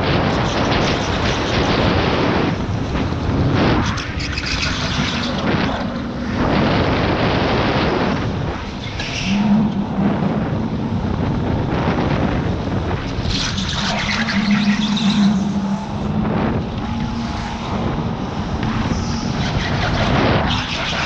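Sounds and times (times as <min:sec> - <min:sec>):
rushing wind: 0:00.0 - 0:21.0
high squeal: 0:13.3 - 0:16.2.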